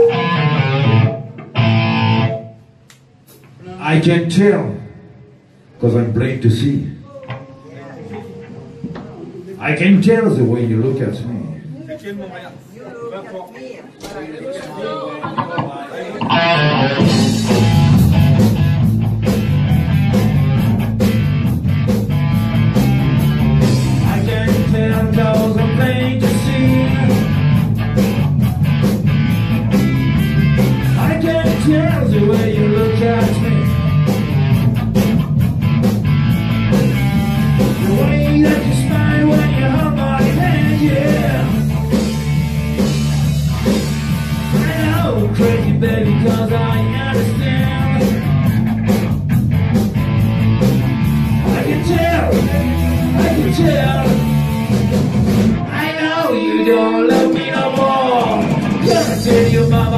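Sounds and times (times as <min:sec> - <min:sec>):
bass guitar: 0:00.0 - 0:03.6, 0:15.6 - 0:59.9
electric guitar: 0:00.0 - 0:03.6, 0:16.2 - 0:59.9
drum kit beat: 0:16.2 - 0:59.9.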